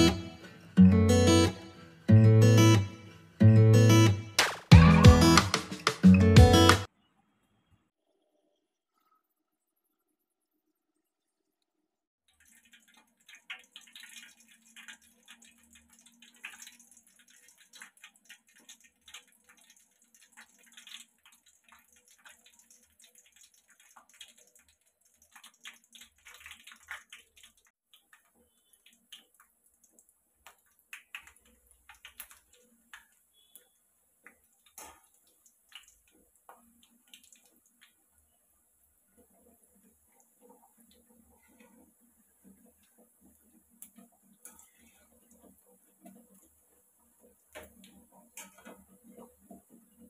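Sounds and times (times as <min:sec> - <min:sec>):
bread frying in hot oil: 0:08.2 - 0:50.0.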